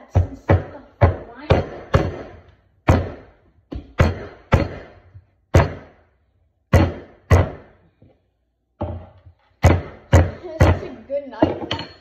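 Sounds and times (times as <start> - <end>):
metal mallet smashing cucumbers on wood: 0.0 - 6.1, 6.7 - 7.8, 8.8 - 12.0.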